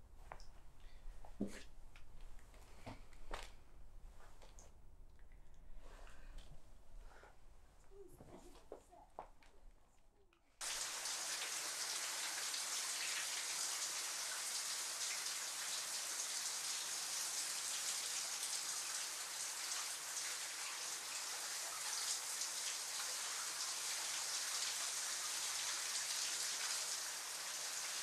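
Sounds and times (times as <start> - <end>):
falling water hissing: 10.6 - 28.0.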